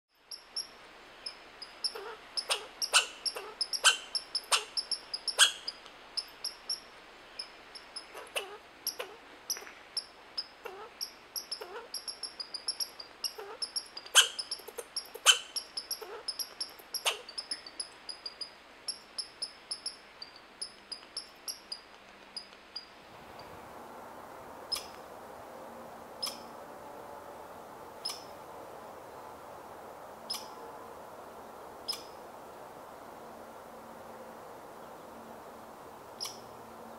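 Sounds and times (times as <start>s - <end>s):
steady background hiss: 0.1s - 36.9s
squirrel chattering calls: 0.3s - 23.5s, 24.7s - 25.0s, 26.2s - 26.5s, 28.0s - 28.4s, 30.3s - 30.6s, 31.8s - 32.2s, 36.2s - 36.5s.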